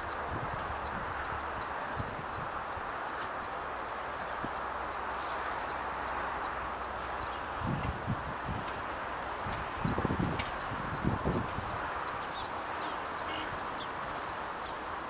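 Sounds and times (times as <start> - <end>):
high chirp of bird or insect: 9.4 - 14.0.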